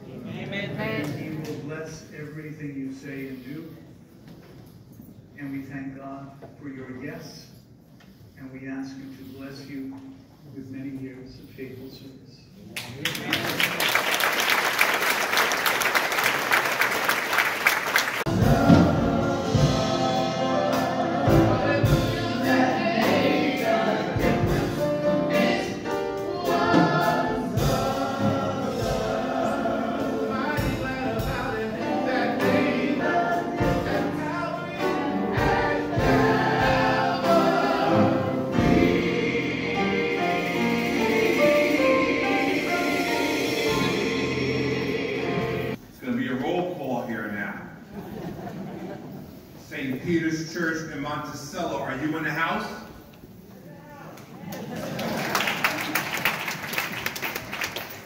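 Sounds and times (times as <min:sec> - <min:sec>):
congregation applauding: 0:12.8 - 0:18.3, 0:54.5 - 0:58.0
choir singing gospel music: 0:17.8 - 0:45.8.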